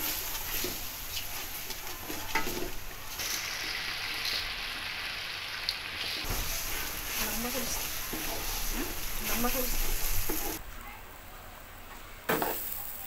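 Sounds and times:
food sizzling in oil: 0.0 - 10.6, 12.3 - 13.0
wooden spoon scraping pot: 6.2 - 10.6.

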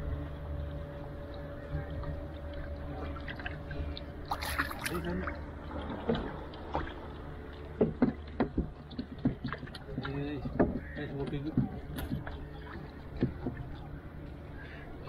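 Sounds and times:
water lapping against canoe: 0.7 - 15.0
sharp knocks on canoe: 7.8 - 12.4, 13.1 - 13.6.

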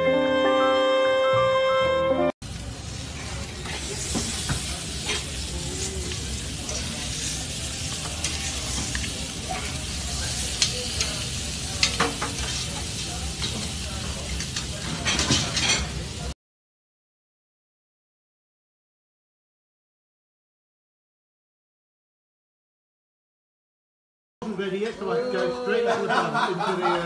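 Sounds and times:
steaks sizzling on grill: 2.4 - 16.3.

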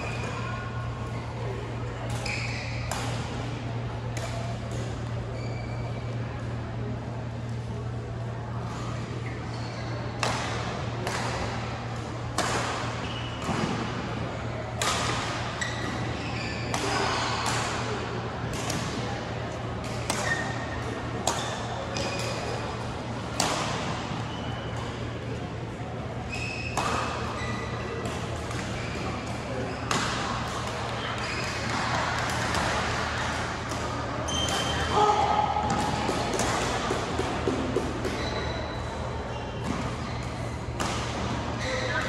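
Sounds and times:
shoes squeaking on court: 2.0 - 3.0, 4.9 - 6.2, 8.8 - 10.2, 15.4 - 17.4, 20.0 - 20.8, 26.2 - 32.5, 36.6 - 42.0.

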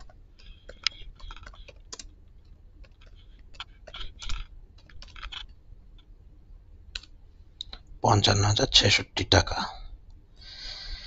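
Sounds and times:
typing on computer keyboard: 0.0 - 2.2, 2.8 - 5.5.

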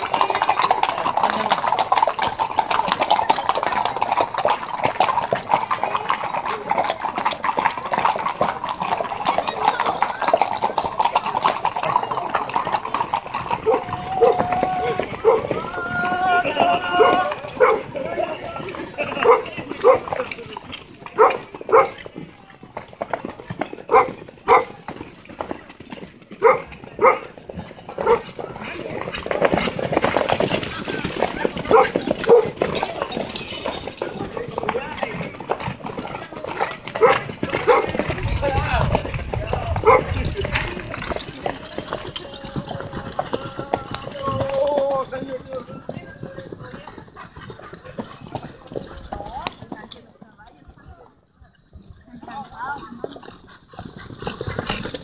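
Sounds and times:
horse hooves clopping on pavement: 0.0 - 55.0
dog barking: 15.2 - 15.4, 17.0 - 17.9, 19.2 - 20.1, 21.2 - 22.0, 23.9 - 24.8, 26.4 - 27.3, 28.0 - 28.3, 31.7 - 32.6, 37.0 - 38.0, 39.8 - 40.1.

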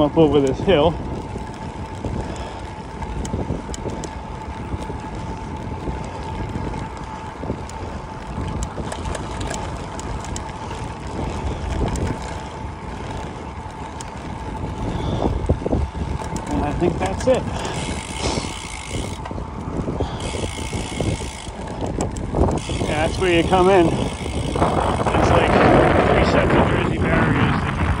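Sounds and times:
bicycle tyres rolling on concrete: 0.0 - 28.0
wind on microphone: 0.0 - 28.0.

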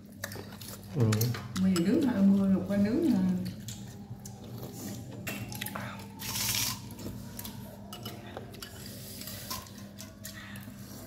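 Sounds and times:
chewing: 0.0 - 11.0.

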